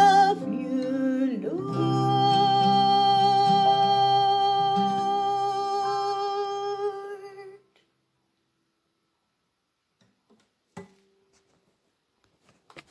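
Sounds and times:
acoustic guitar: 0.0 - 7.8.

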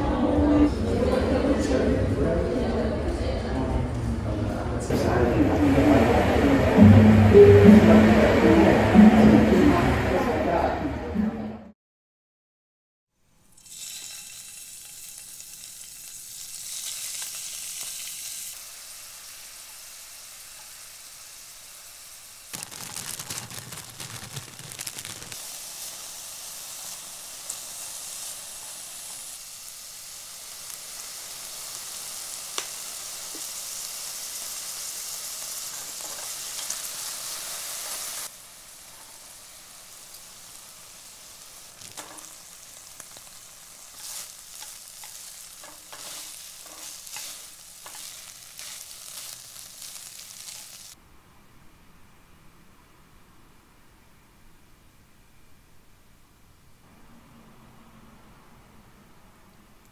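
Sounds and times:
food sizzling in frying pan: 13.4 - 51.0.

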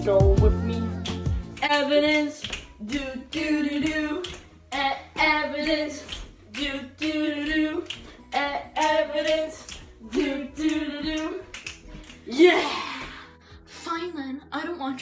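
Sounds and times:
girl singing: 1.6 - 11.5.

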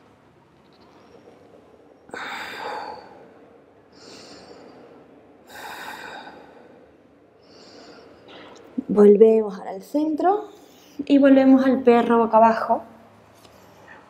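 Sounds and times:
woman breathing deeply: 2.0 - 8.8.

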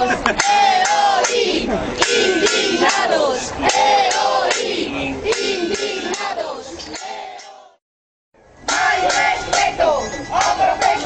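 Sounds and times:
crowd chanting slogans: 0.0 - 7.8, 8.6 - 11.0.

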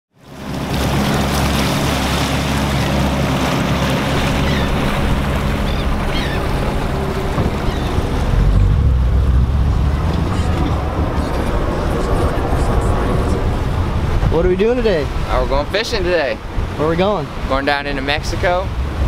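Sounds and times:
boat engine drone: 0.1 - 19.0
water rushing past hull: 0.1 - 19.0
wind buffeting microphone: 0.4 - 19.0.

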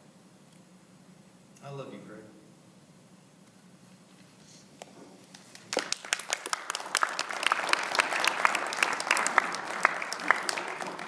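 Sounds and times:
audience applause: 5.3 - 11.0.

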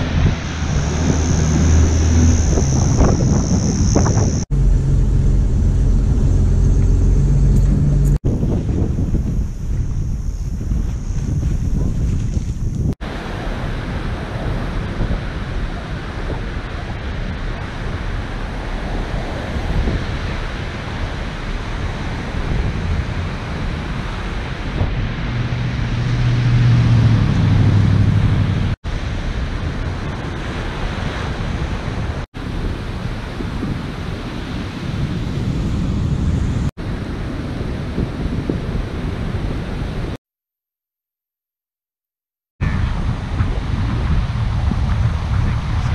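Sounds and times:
ocean surf breaking: 0.0 - 4.5, 13.0 - 40.2
wind buffeting microphone: 0.0 - 40.2, 42.6 - 45.9.

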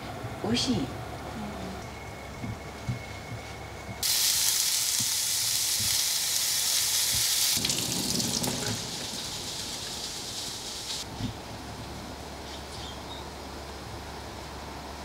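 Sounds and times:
tap water running into colander: 4.0 - 11.0
food sizzling in a frying pan: 4.0 - 11.1.

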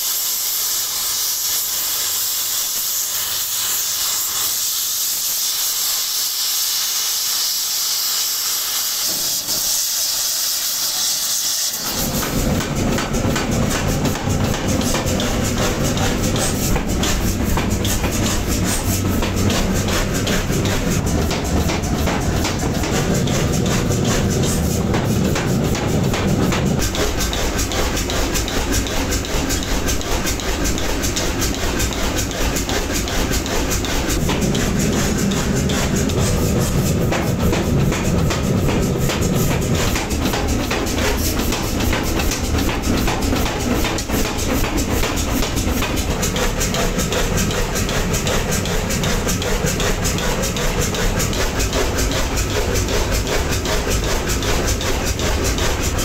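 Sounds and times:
metalworking machinery clatter: 0.0 - 56.0
low machine hum: 11.8 - 56.0.

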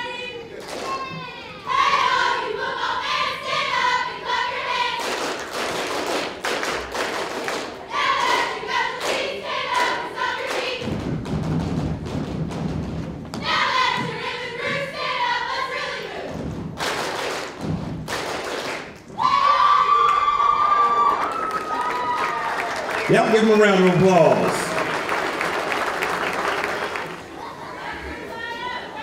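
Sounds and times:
sharp claps: 5.0 - 10.9, 16.8 - 19.2
girls shouting a cheer: 19.2 - 22.7, 27.4 - 29.0.

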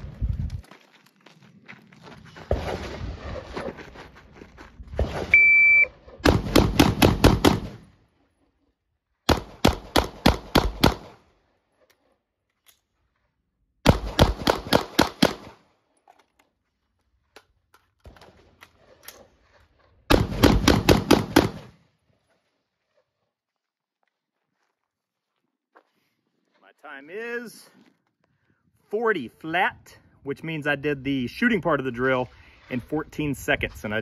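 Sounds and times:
shot timer beep: 5.3 - 5.9
rapid gunshots: 6.2 - 7.8, 9.3 - 11.2, 13.8 - 15.6, 20.1 - 21.7.

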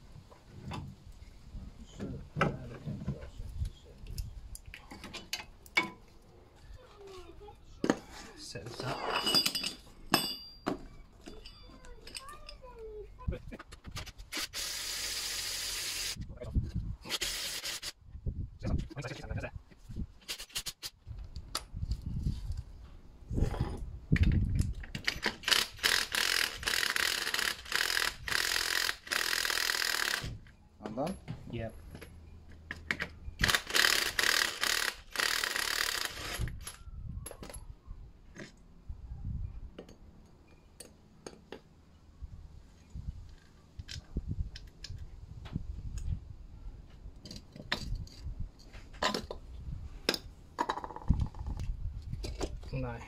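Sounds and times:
metal parts clinking on concrete: 8.6 - 12.9, 47.2 - 49.4, 50.1 - 51.6.

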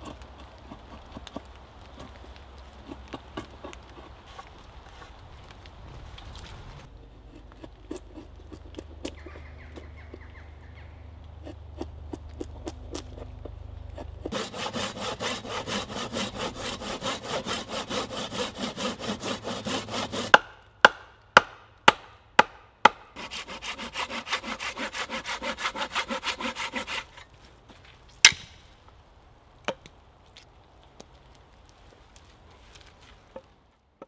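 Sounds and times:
hand saw cutting wood: 2.8 - 5.1, 7.2 - 9.2, 14.0 - 20.5, 22.8 - 27.3.

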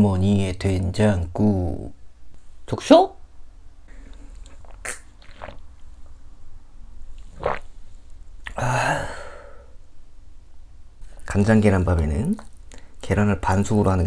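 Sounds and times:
mouth and swallowing sounds: 3.9 - 5.9, 7.2 - 7.7
breathy sigh: 8.5 - 9.8.

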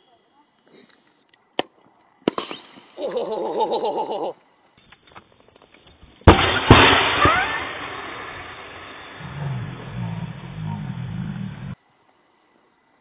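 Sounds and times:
sharp crack: 1.5 - 3.2, 6.2 - 10.5
battery bursting with loud bang: 1.6 - 2.9, 6.2 - 9.3.

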